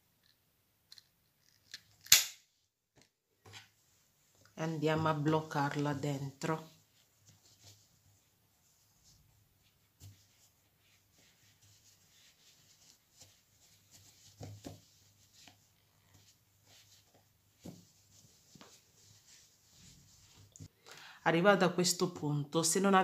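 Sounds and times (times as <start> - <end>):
crochet hook and yarn rubbing: 4.9 - 20.6.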